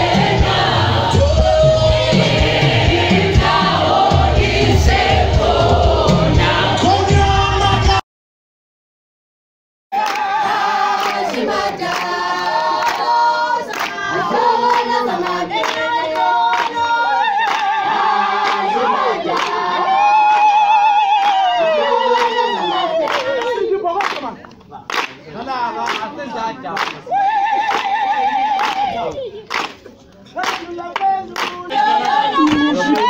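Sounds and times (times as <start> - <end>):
girls singing in chorus: 0.0 - 6.8, 10.0 - 20.4, 31.6 - 33.0
hand claps: 10.0 - 10.3, 10.9 - 14.1, 14.7 - 15.9, 17.4 - 17.8, 19.3 - 19.6, 21.2 - 25.2, 25.8 - 26.1, 26.7 - 27.0, 27.6 - 33.0.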